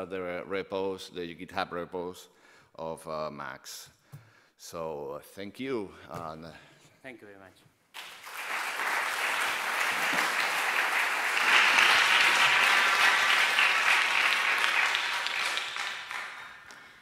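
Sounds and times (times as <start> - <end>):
audience applauding: 8.0 - 17.0.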